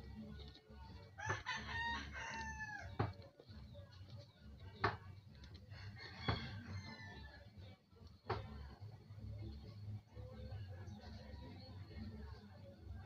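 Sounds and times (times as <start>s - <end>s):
rooster crowing: 1.2s - 3.0s, 5.7s - 7.4s.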